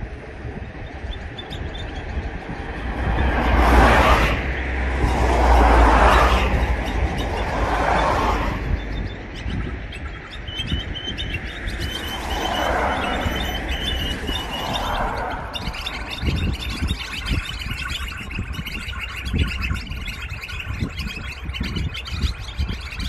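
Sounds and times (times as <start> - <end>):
small birds chirping: 0.0 - 3.6, 4.4 - 23.0
deep rumble: 0.0 - 23.0
vehicles passing whoosh: 0.0 - 23.0.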